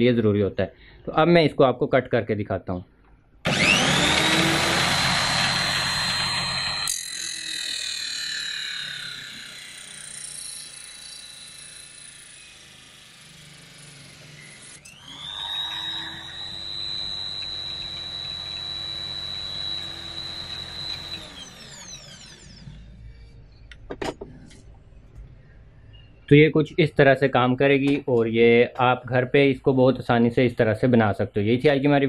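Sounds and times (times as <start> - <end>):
drill saw whining: 3.5 - 23.6.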